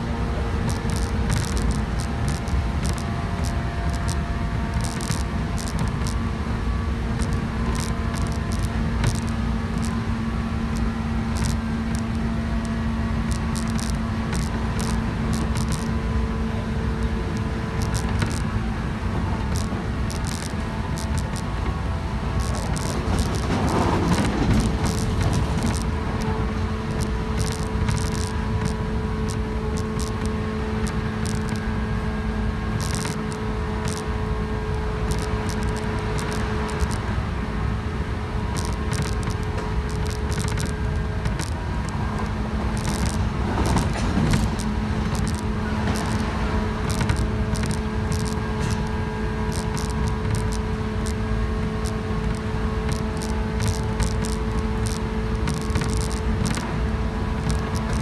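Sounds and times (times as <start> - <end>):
steady low hum: 0.0 - 58.0
train wheels rumbling on rail: 0.0 - 58.0
wheel clicks: 22.4 - 25.9.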